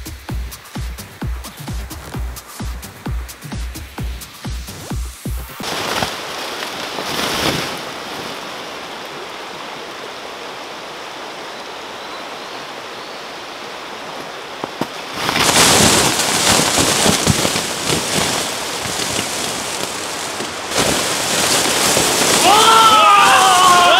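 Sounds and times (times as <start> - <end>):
river running over stones: 0.0 - 23.9
loud rushing crackling noise: 0.9 - 11.4, 13.9 - 23.9.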